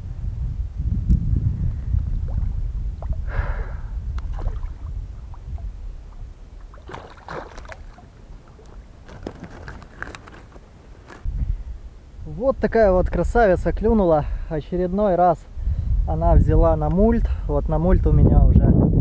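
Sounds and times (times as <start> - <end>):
low wind rumble on microphone: 0.0 - 19.0
fish thrashing and splashing: 4.3 - 4.9, 6.6 - 10.6.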